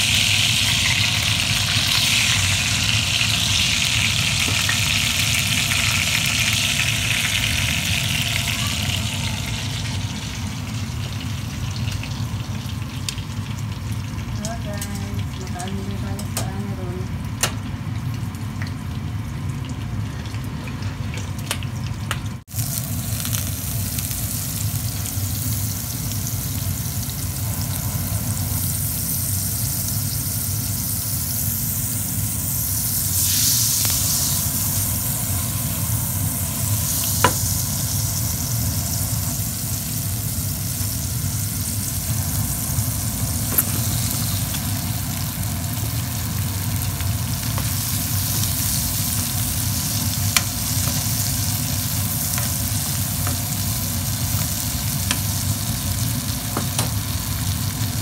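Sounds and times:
butter sizzling in frying pan: 0.0 - 16.7, 21.4 - 58.0
steady low hum: 22.6 - 58.0.

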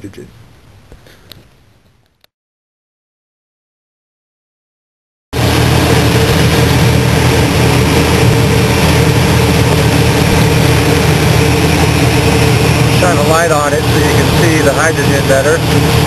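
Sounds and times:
truck engine running: 5.4 - 16.0.

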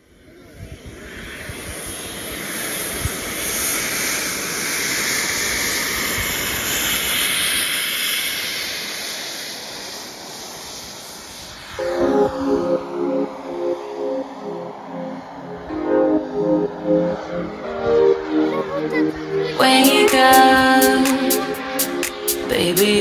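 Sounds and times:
model jet turbine whine: 0.0 - 15.7
music: 11.8 - 23.0.

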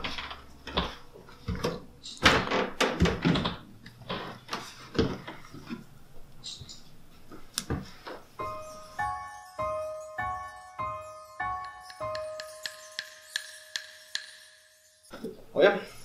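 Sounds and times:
soft chiming tune: 8.4 - 15.2.

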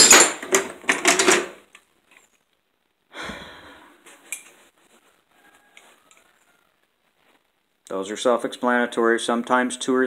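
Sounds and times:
person sighing: 3.1 - 4.0.

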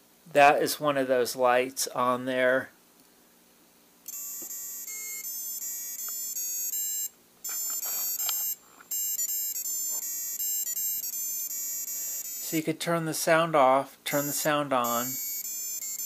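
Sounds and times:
electronic buzzer beeping tune: 4.1 - 12.6, 14.1 - 16.0.

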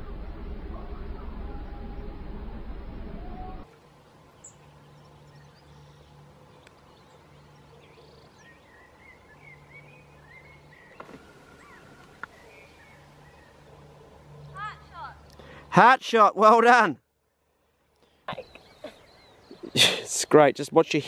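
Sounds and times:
low hum: 0.0 - 15.7
small birds chirping: 3.6 - 15.7, 17.2 - 21.0.

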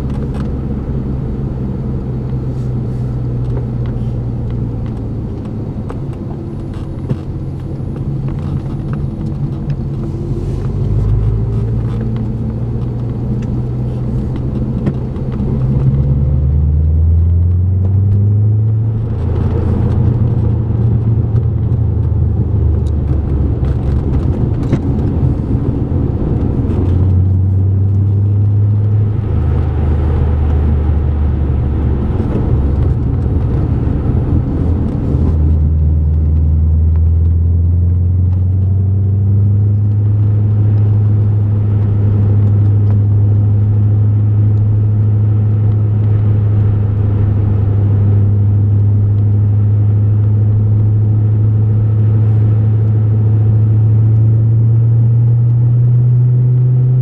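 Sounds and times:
car engine from inside cabin: 0.0 - 57.0.

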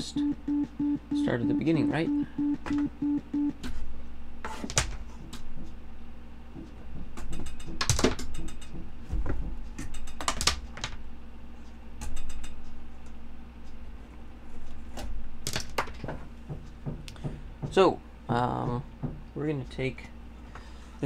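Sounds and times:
low steady hum: 0.0 - 7.8.

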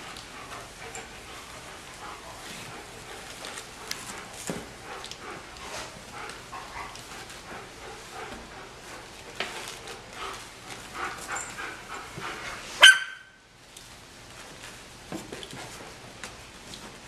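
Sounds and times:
puppies scuffling: 0.0 - 12.9
puppy yelping sharply: 12.8 - 13.4.

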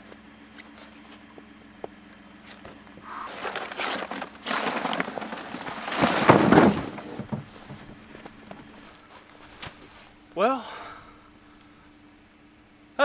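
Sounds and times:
rustling and scraping handling noise: 2.4 - 10.2.

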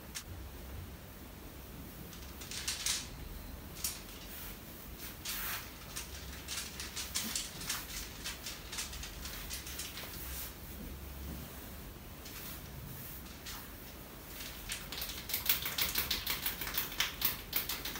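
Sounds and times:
low steady hum: 0.0 - 15.3
hands scratching through hair: 3.9 - 10.7.

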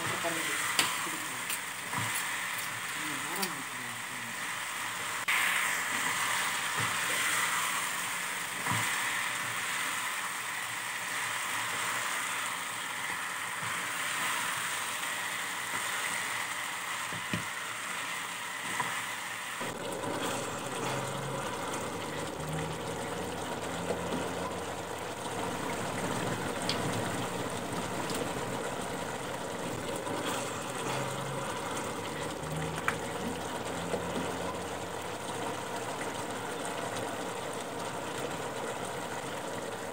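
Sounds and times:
chicken sizzling in a pan: 0.0 - 39.8
gravy bubbling: 19.6 - 39.9.

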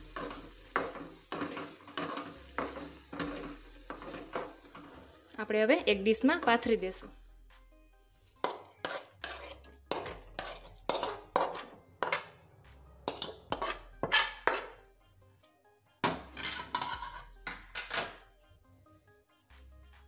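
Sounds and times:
steel spoon scraping a pan: 0.0 - 5.3, 8.1 - 12.4, 13.0 - 14.8, 16.0 - 18.2.

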